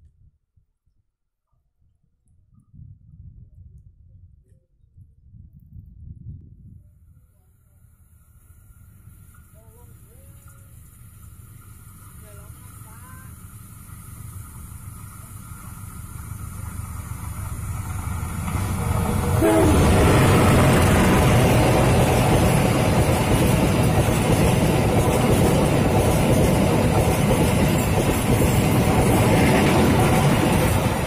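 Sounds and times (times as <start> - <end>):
train wheels rumbling on rails: 9.0 - 31.0.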